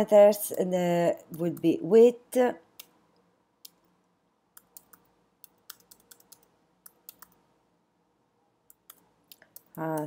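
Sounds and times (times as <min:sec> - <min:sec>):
faint keyboard typing: 0:04.5 - 0:07.5, 0:08.6 - 0:10.0.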